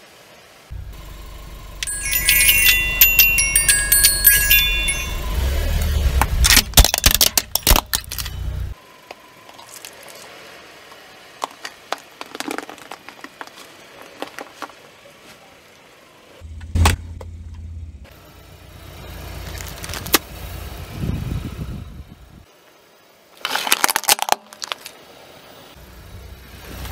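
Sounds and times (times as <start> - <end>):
metal xylophone keys jangling: 1.8 - 5.6
plastic cracking under tyre: 11.4 - 14.8, 19.4 - 20.3, 23.4 - 25.0.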